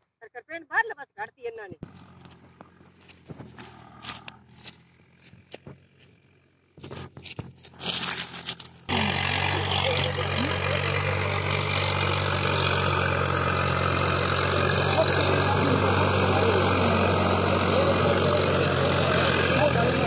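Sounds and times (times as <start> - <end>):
rustles and clicks: 1.8 - 8.9
tractor diesel engine running: 1.8 - 20.0.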